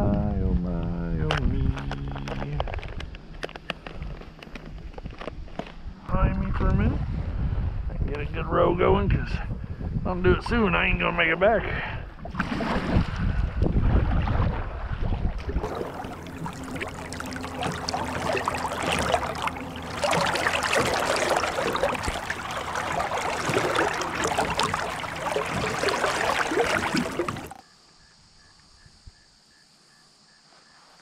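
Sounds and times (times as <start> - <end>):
paddle splashing water: 12.2 - 27.6.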